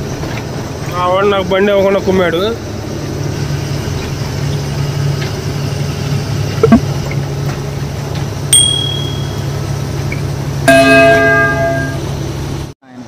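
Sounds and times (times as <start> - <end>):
truck engine running: 0.0 - 12.7
short bell-like ding: 8.6 - 9.7.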